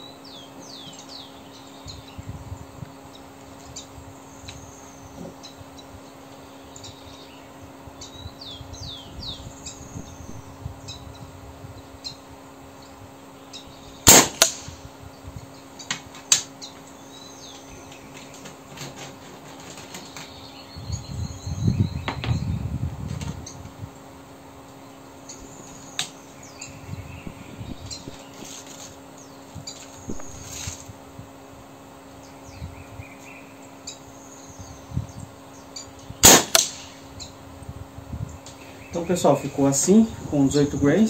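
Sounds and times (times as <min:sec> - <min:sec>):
birds chirping: 0:00.0 - 0:30.9, 0:31.9 - 0:41.0
low rumbling: 0:08.2 - 0:11.9, 0:26.4 - 0:28.6, 0:30.0 - 0:30.7
air rifle shot: 0:14.0 - 0:14.9, 0:30.1 - 0:30.5, 0:36.2 - 0:37.0.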